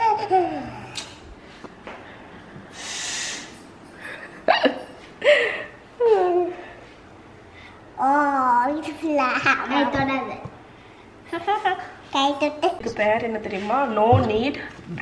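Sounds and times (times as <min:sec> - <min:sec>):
child giggling: 0:00.0 - 0:01.0
hiss: 0:02.7 - 0:03.6.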